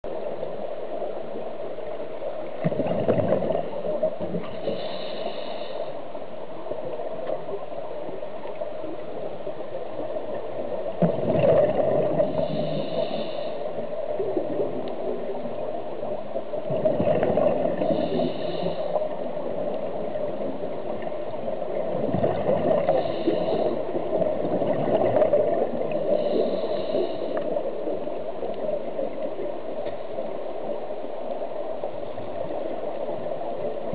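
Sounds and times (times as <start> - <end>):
underwater noise: 0.0 - 33.9
exhaled bubbles: 2.6 - 4.5, 11.0 - 12.8, 16.6 - 18.7, 21.7 - 27.2
regulator air hiss: 4.6 - 6.3, 12.3 - 13.8, 17.9 - 19.2, 22.9 - 24.1.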